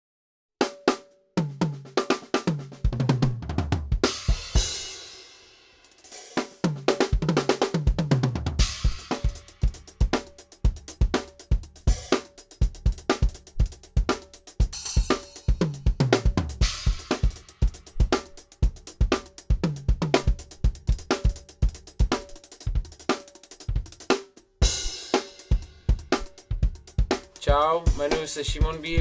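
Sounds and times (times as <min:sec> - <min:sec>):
bass drum and snare beat: 0:00.6 - 0:29.0
hi-hat: 0:08.8 - 0:29.0
tom fills: 0:24.6 - 0:29.0.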